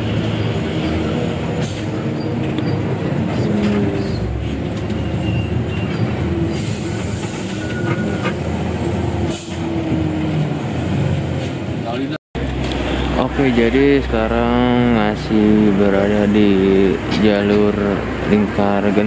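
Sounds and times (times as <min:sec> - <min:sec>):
bus body rattling: 0:00.0 - 0:12.7
bus diesel engine running: 0:00.0 - 0:19.0
road noise: 0:00.0 - 0:19.0.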